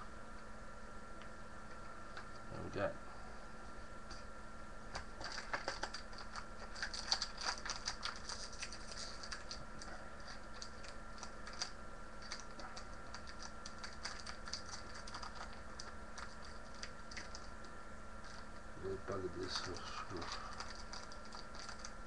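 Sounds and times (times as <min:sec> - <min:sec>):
cards and wrapper clicking crinkling: 0:04.9 - 0:18.5, 0:19.4 - 0:22.0.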